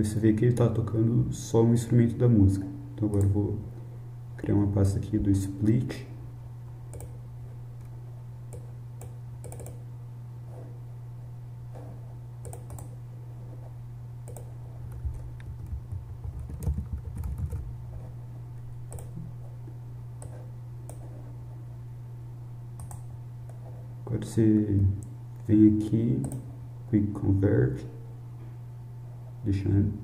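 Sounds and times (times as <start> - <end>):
low electrical hum: 0.0 - 30.0
keyboard typing: 6.9 - 7.2, 8.5 - 9.8, 12.4 - 13.0, 14.2 - 18.1, 18.9 - 19.2, 22.8 - 23.6
mouse clicks: 6.9 - 7.2, 8.5 - 9.8, 12.4 - 13.0, 14.2 - 14.5, 22.8 - 23.6.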